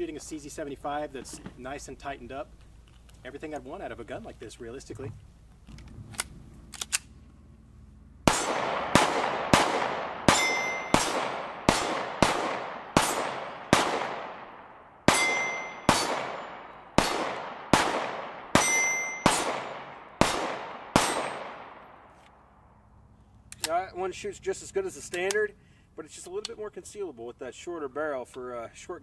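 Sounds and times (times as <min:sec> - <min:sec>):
pistol shots echoing: 0:08.3 - 0:22.1
short ringing tone: 0:10.4 - 0:10.9, 0:15.2 - 0:15.9, 0:18.6 - 0:19.3.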